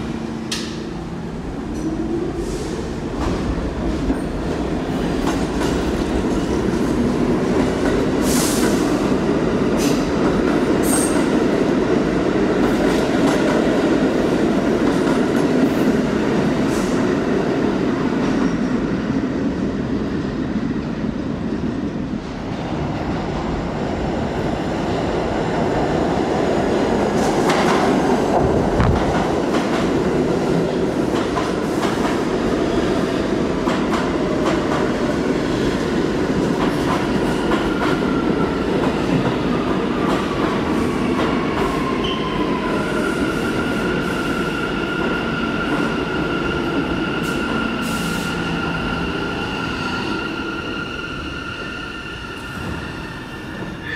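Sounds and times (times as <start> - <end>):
rail-joint clicks: 0.5 - 0.8.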